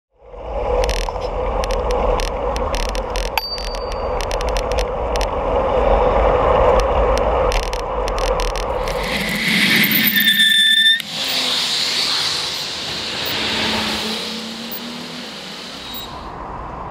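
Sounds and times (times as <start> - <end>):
bicycle road noise: 0.1 - 16.9
bicycle clicks and rattles: 0.8 - 5.3, 6.8 - 9.3.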